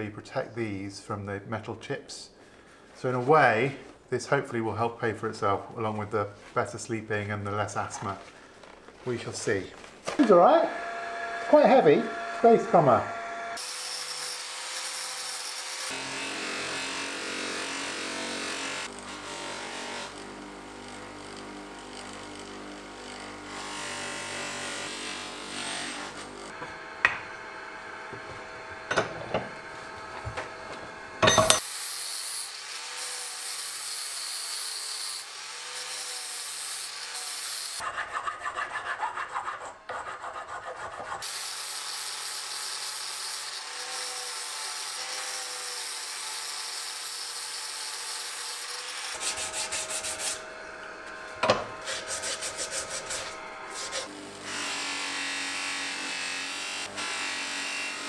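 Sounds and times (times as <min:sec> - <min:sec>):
abrasive disc sanding metal: 0:49.1 - 0:50.4, 0:51.8 - 0:54.1.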